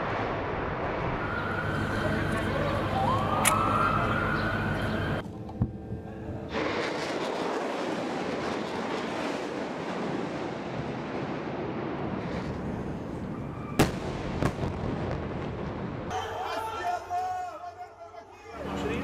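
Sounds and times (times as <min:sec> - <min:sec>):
continuous rushing noise: 0:00.0 - 0:11.0
sudden sharp explosion: 0:13.4 - 0:16.1.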